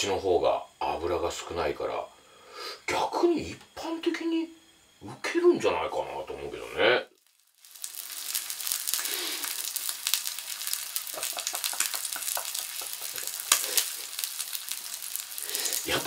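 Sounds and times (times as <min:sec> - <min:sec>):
meat sizzling on a grill: 0:06.9 - 0:16.0.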